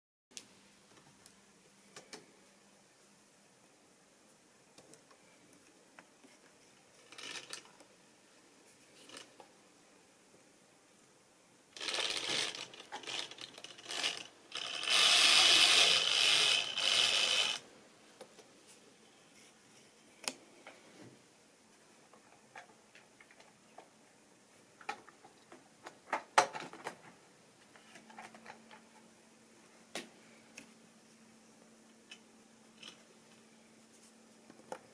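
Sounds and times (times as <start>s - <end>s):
rough mechanical whirring: 11.8s - 17.6s.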